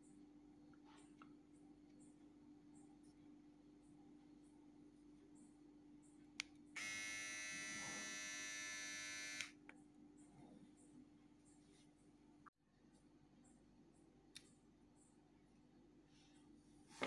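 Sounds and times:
beard trimmer buzzing: 6.8 - 9.6.

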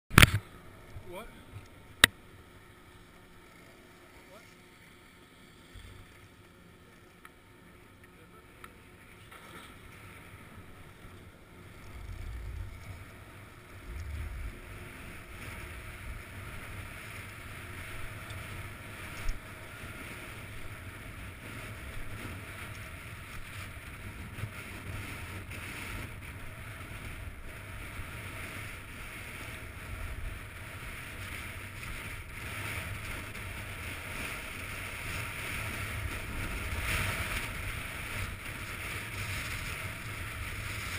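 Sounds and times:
sharp click: 0.1 - 0.4
wind rumbling on microphone: 9.8 - 40.9
skis scraping on packed snow: 12.4 - 40.9.

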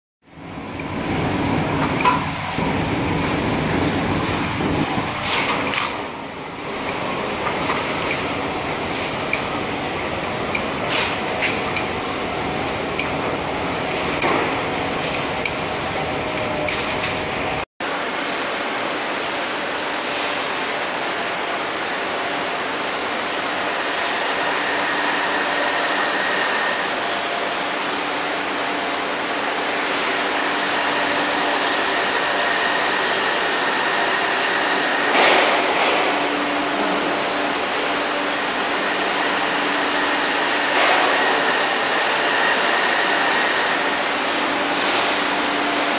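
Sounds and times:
machine hum: 0.2 - 17.7
thin machine whine: 21.3 - 45.9.

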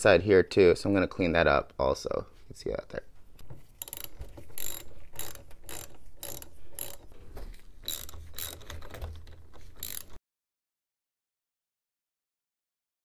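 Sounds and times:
socket ratchet clicking: 3.8 - 10.2.

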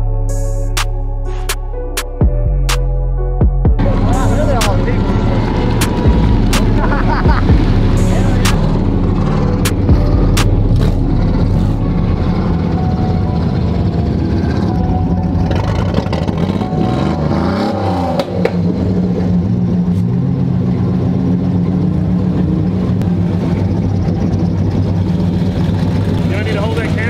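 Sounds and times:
truck engines revving: 3.8 - 27.0.

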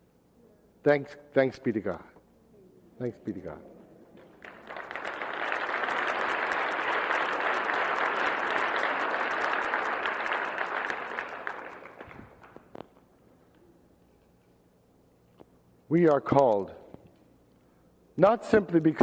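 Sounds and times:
audience applauding: 4.2 - 12.8.

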